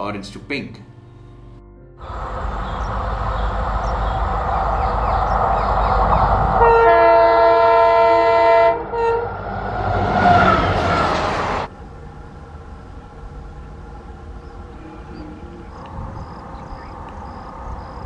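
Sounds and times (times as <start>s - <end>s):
diesel locomotive engine running: 2.0s - 18.0s
train wheels rushing past: 2.0s - 18.0s
multi-tone train horn: 6.6s - 11.5s, 14.7s - 15.8s.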